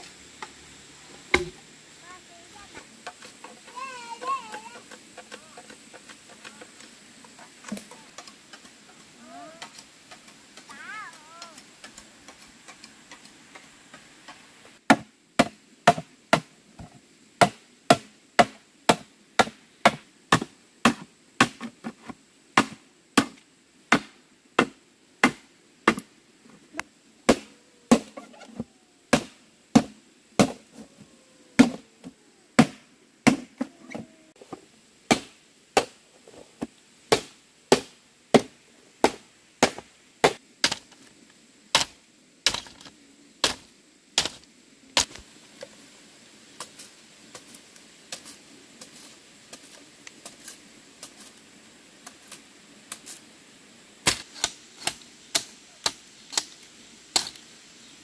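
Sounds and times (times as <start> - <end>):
chopping on wood: 1.3 - 1.6, 14.9 - 16.5, 17.4 - 21.7, 22.6 - 26.1, 29.1 - 30.6, 31.6 - 31.8, 32.6 - 33.7, 35.1 - 36.0, 37.1 - 40.8.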